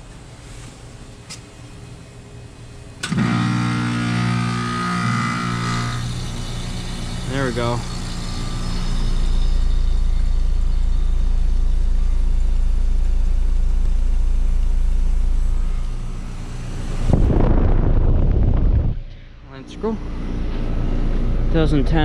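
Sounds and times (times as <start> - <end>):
heat pump low hum: 0.0 - 22.0
rough air rush on microphone: 16.6 - 20.8.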